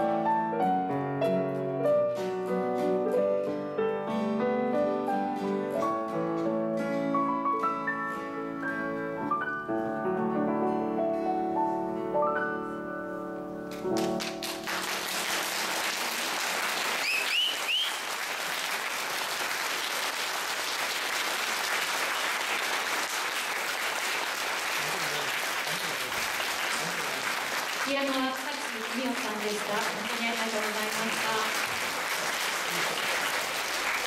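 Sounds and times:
piano notes ringing out: 0.0 - 14.8
audience applause: 13.7 - 34.0.

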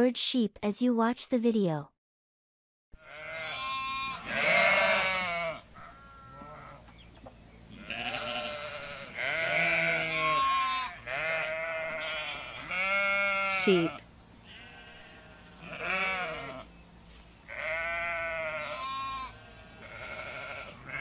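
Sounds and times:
sheep bleating: 3.0 - 6.8, 7.7 - 16.7, 17.5 - 21.0.

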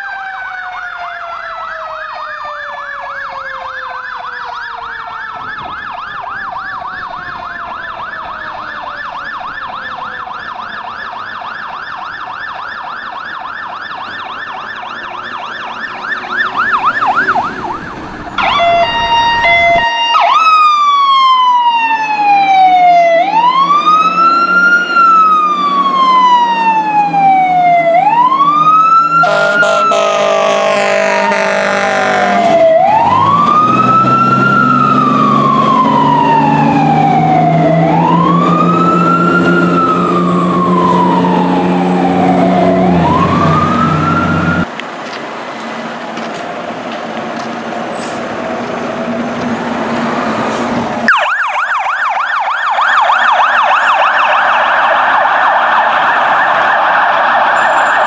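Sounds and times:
fast-warbling yelp siren: 0.0 - 44.7, 51.1 - 58.0
fire engine siren wailing: 0.0 - 58.0
traffic noise: 0.0 - 58.0
air horn blast: 29.2 - 32.6.

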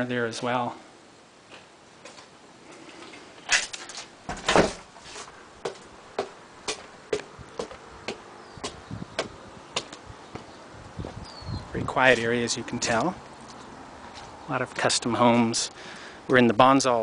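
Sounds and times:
loud thumps: 4.3 - 4.9
footsteps on concrete steps: 4.4 - 11.3.

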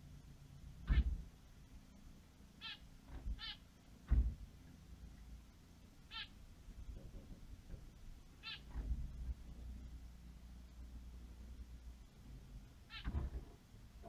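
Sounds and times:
nasal finch calls: 0.8 - 1.2, 2.6 - 3.6, 6.1 - 6.4, 8.4 - 8.8, 12.9 - 13.2
dull thump: 4.1 - 4.5.

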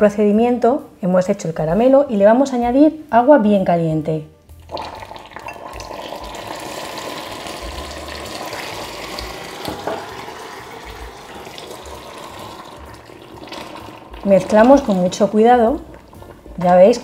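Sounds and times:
caramel boiling and sputtering: 4.6 - 17.0.

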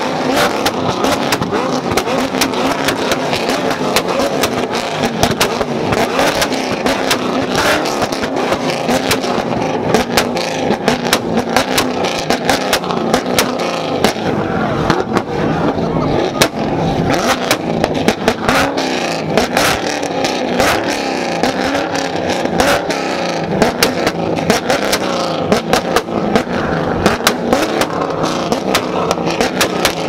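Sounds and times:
exhaust pops and cracks: 0.0 - 15.4, 23.6 - 30.0
car engine revving: 0.0 - 30.0
crowd: 0.0 - 30.0.

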